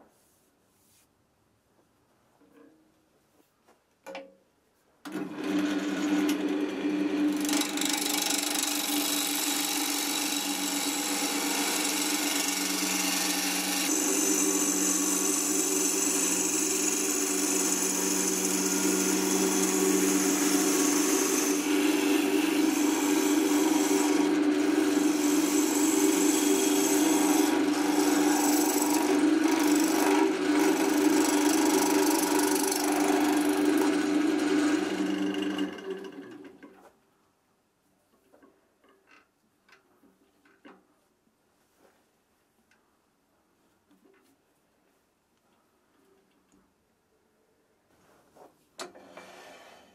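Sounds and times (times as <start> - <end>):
wood lathe motor hum: 5.1 - 36.6
gouge cutting wood shavings: 5.6 - 35.7.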